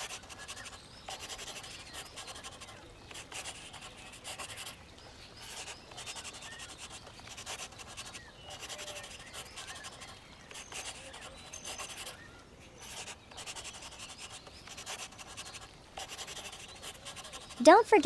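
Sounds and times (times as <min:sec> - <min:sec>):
marker drawn across paper: 0:00.0 - 0:04.8, 0:05.4 - 0:12.2, 0:12.8 - 0:17.8.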